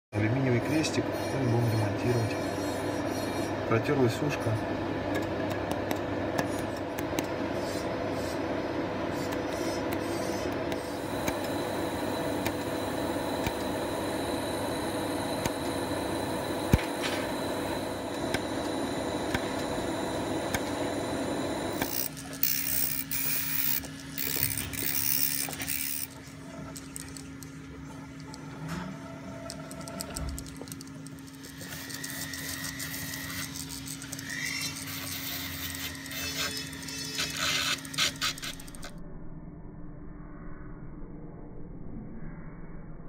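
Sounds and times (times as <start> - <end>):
laser welder running: 0.4 - 28.8, 29.4 - 39.0
micromotor handpiece humming: 9.1 - 39.0
weld pulse click: 9.2 - 14.0, 14.9 - 27.6, 29.4 - 39.0.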